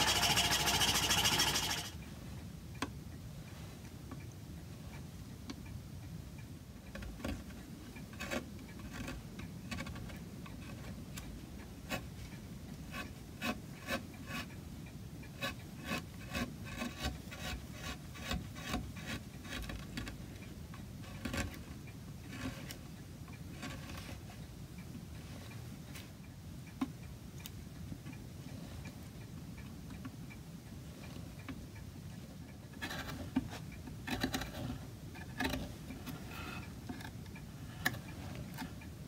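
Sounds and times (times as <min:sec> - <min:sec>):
file scraping wood edges: 0:00.0 - 0:02.0, 0:15.4 - 0:19.8.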